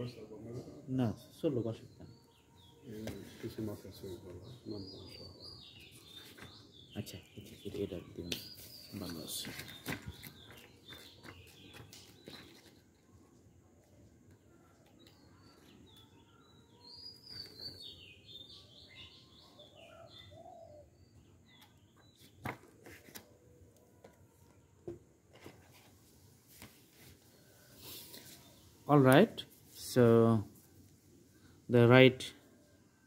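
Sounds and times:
faint bird chirps: 0:00.0 - 0:22.4.

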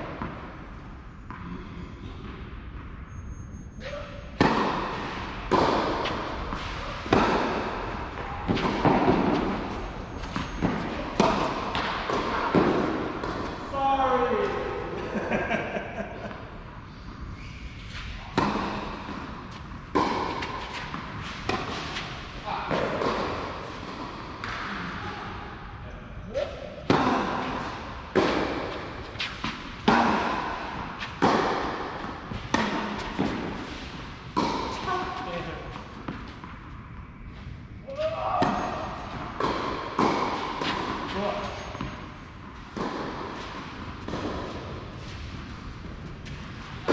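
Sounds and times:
racket striking tennis ball: 0:04.4 - 0:13.7, 0:18.0 - 0:24.7, 0:26.5 - 0:36.7, 0:38.4 - 0:46.9
tennis ball bouncing: 0:04.4 - 0:13.7, 0:18.3 - 0:24.7, 0:26.6 - 0:37.1, 0:38.4 - 0:46.9
tennis ball bouncing on clay: 0:27.6 - 0:34.9.

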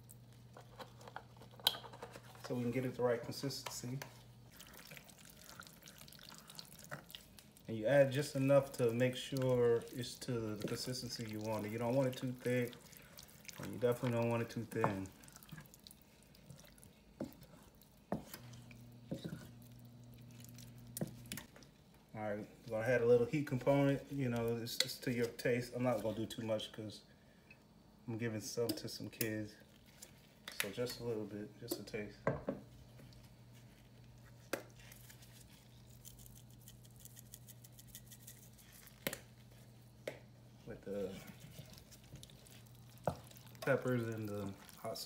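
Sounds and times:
spoon stirring thick filling: 0:00.0 - 0:21.8, 0:32.7 - 0:45.0
faint steady hum: 0:00.0 - 0:45.0.

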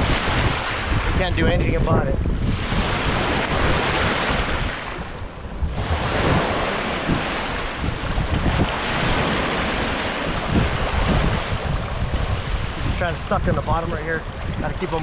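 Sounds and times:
waves washing over sand: 0:00.0 - 0:15.0
wind buffeting microphone: 0:00.0 - 0:15.0.

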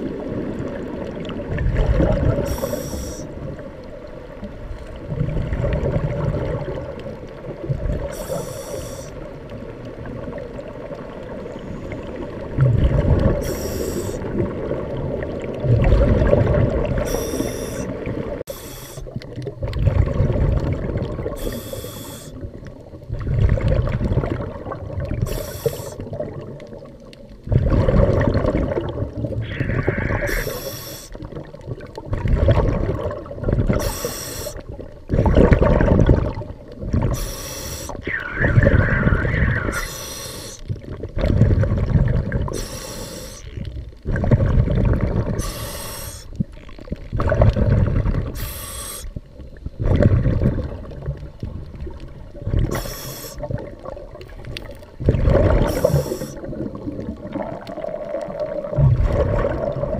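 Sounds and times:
exhaled air bubbling: 0:00.0 - 0:59.9
regulator hissing inhalations: 0:02.5 - 0:03.3, 0:08.2 - 0:09.2, 0:13.4 - 0:14.2, 0:17.1 - 0:17.9, 0:18.5 - 0:19.1, 0:21.4 - 0:22.4, 0:25.3 - 0:26.0, 0:30.2 - 0:31.2, 0:33.8 - 0:34.6, 0:37.2 - 0:38.4, 0:39.6 - 0:40.6, 0:42.5 - 0:43.5, 0:45.4 - 0:46.4, 0:48.4 - 0:49.2, 0:52.7 - 0:53.5, 0:55.7 - 0:56.4.

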